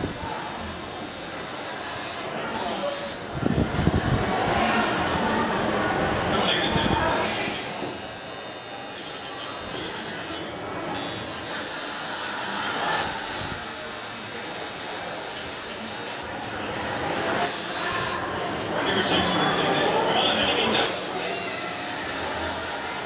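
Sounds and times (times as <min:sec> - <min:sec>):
tattoo machine buzzing: 0:00.0 - 0:03.2, 0:07.3 - 0:12.4, 0:13.0 - 0:16.3, 0:17.4 - 0:18.2, 0:20.8 - 0:23.0.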